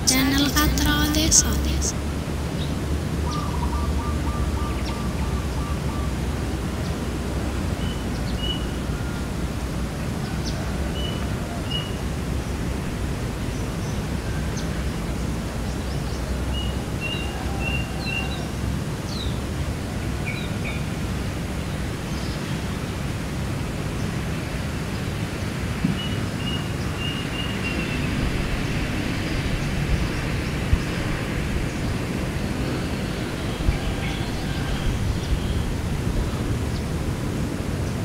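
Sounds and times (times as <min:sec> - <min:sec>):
outdoor background hiss: 0:00.0 - 0:38.0
bird calls: 0:03.2 - 0:06.3.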